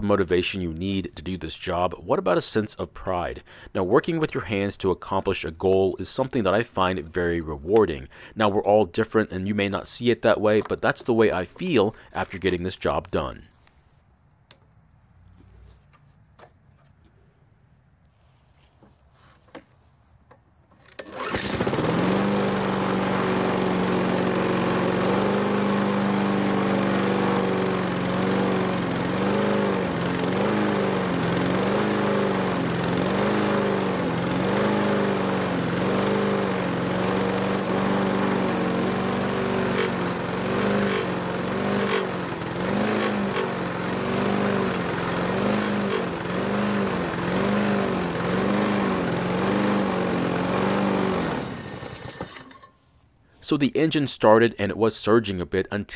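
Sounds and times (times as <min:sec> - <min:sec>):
lawn mower engine surging: 0:09.0 - 0:13.4, 0:20.8 - 0:52.8.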